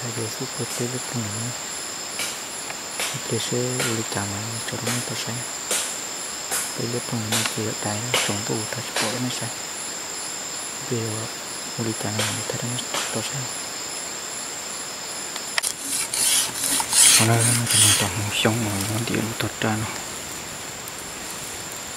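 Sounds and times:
man speaking low: 0.0s - 1.6s, 3.2s - 5.4s, 6.8s - 9.6s, 10.8s - 13.5s, 17.0s - 20.0s
night insects trilling: 0.0s - 21.9s
clicks and rustles: 15.4s - 19.2s.

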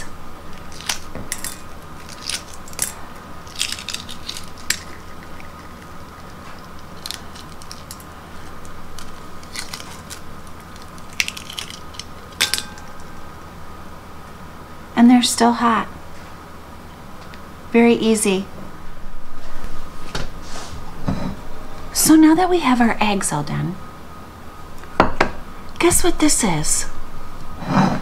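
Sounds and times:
egg shell cracking and peeling: 0.0s - 13.3s.

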